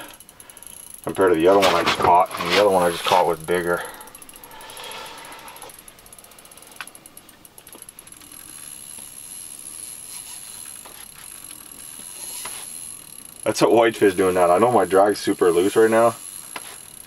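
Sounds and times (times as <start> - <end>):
fishing reel drag ticking: 0.0 - 17.0
reel clicks: 0.0 - 17.0.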